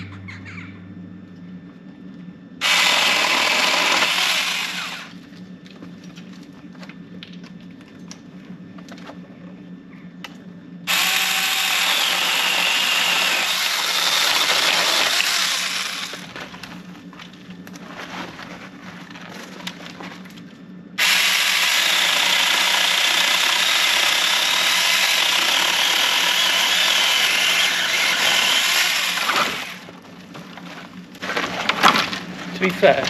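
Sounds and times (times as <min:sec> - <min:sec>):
cordless chainsaw cutting branches: 0:02.6 - 0:05.2, 0:10.9 - 0:16.4, 0:21.0 - 0:29.9.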